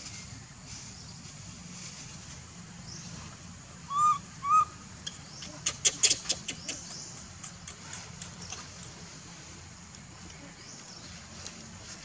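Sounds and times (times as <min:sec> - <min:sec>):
baby monkey coo calls: 0:03.9 - 0:08.9
baby monkey sharp clicks: 0:05.0 - 0:09.0.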